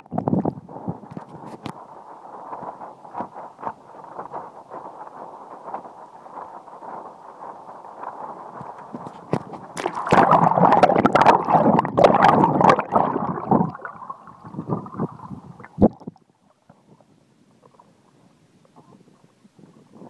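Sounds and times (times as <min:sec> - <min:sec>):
water rushing and gurgling: 0:08.2 - 0:20.0
splashes and sharp clicks: 0:08.5 - 0:16.2.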